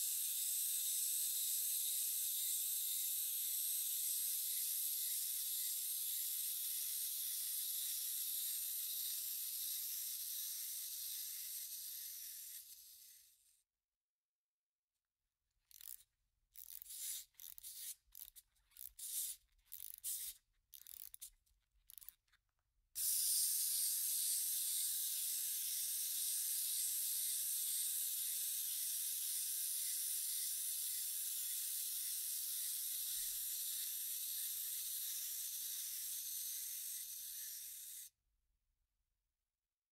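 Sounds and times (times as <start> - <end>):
toy spring motor whirring: 0.0 - 13.6, 15.7 - 22.4, 23.0 - 38.2
wind-up toy key twisting: 15.7 - 22.4, 23.0 - 38.0.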